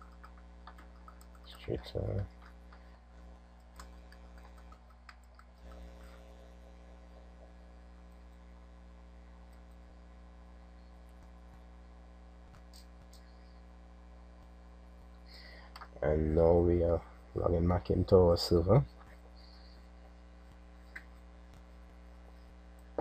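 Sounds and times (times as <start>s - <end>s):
keyboard and mouse clicks: 0.0s - 1.7s
faint mains hum: 0.0s - 23.0s.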